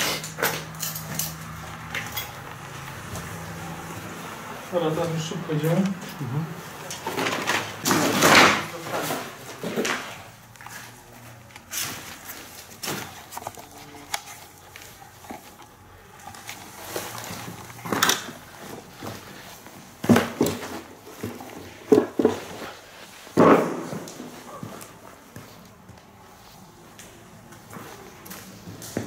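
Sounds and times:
footsteps on rubble: 6.9s - 29.0s.

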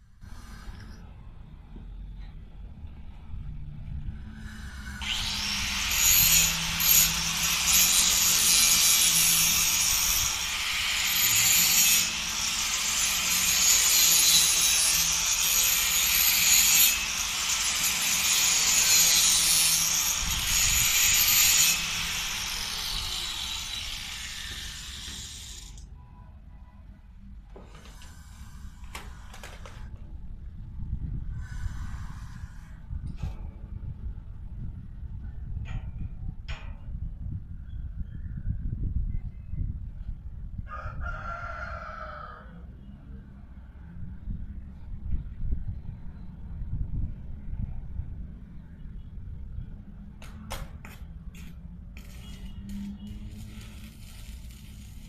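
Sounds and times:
angle grinder grinding metal: 4.4s - 25.8s.

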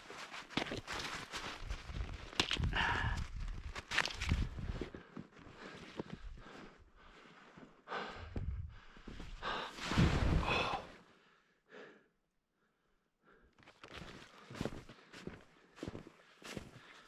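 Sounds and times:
fall into snow: 9.8s - 10.8s.

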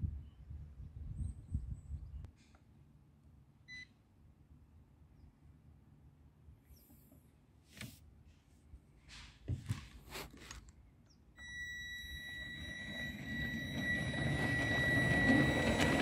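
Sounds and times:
model locomotive motor whine: 11.4s - 16.0s.

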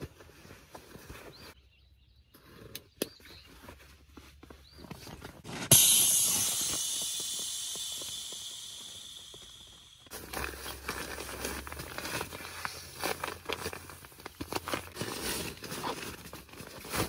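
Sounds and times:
air hissing from valve: 5.7s - 10.1s.

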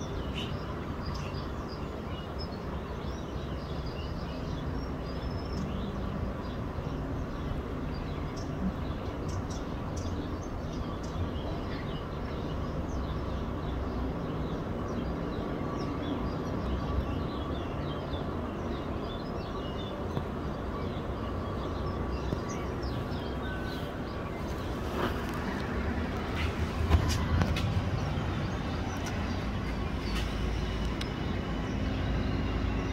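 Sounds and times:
small birds chirping: 0.0s - 32.9s
distant jet engine rumble: 18.1s - 32.9s.

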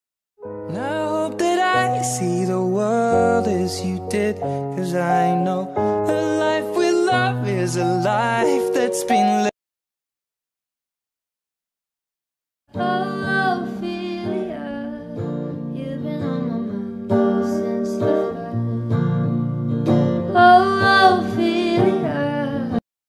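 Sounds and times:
person singing: 0.6s - 9.6s, 12.8s - 19.2s, 20.3s - 22.8s
plucked acoustic guitar: 0.7s - 9.5s, 12.8s - 22.8s.

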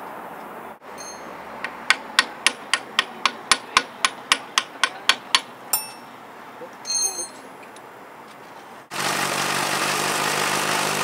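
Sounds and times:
hammer tapping on metal: 1.0s - 6.1s.

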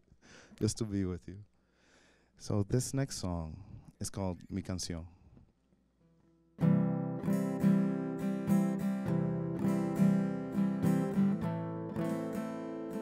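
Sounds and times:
acoustic guitar strumming: 6.6s - 13.0s.

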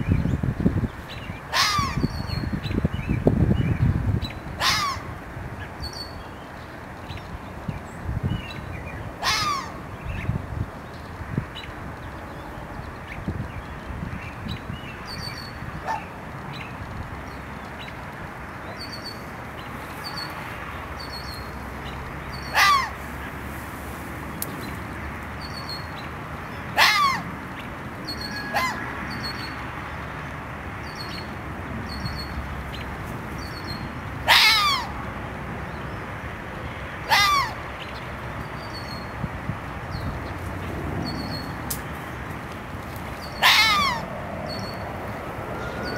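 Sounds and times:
fox barking: 1.5s - 2.0s, 4.6s - 5.1s, 9.2s - 9.7s, 22.5s - 23.0s, 26.8s - 27.3s, 28.4s - 28.8s, 34.2s - 34.9s, 37.1s - 37.6s, 43.4s - 44.2s.

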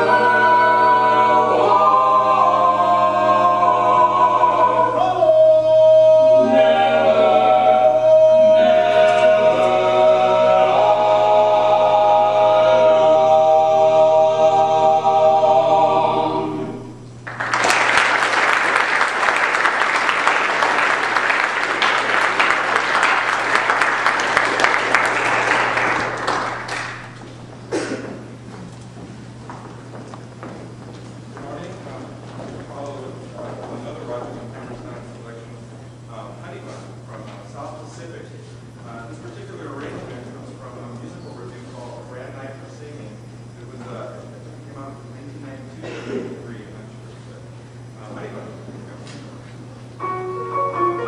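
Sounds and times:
male vocal quartet singing: 0.0s - 17.0s
audience applauding: 17.2s - 27.4s.

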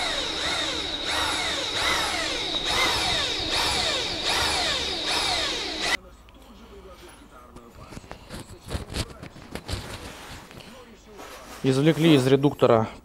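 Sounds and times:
electric drill boring metal: 0.0s - 6.0s
steady high tone: 0.0s - 6.0s.

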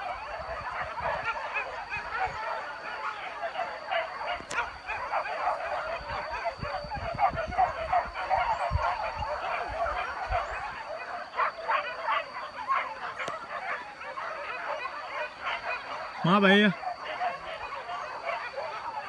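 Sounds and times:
dogs barking and yelping: 0.0s - 19.0s.

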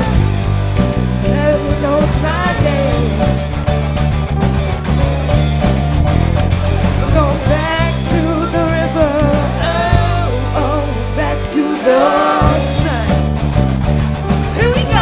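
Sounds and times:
rock band playing: 0.0s - 15.0s
women singing: 1.2s - 3.2s, 7.1s - 13.2s, 14.6s - 15.0s.

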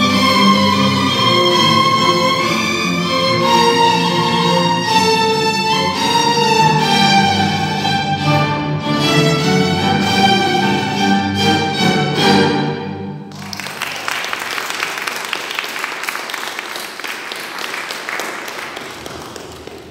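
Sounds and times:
string ensemble playing: 0.0s - 13.9s
audience applause: 13.3s - 19.9s.

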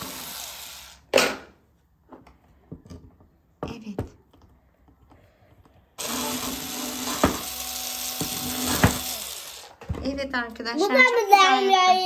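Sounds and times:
cordless drill motor whining: 0.0s - 1.0s, 6.0s - 9.8s
drill bit knocking on wood: 6.0s - 10.0s.

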